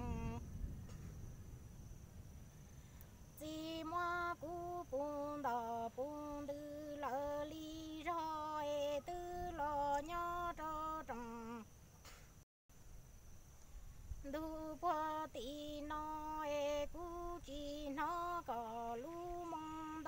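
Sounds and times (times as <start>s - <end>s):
woman singing unaccompanied: 0.0s - 0.5s, 3.3s - 11.8s, 14.2s - 20.0s.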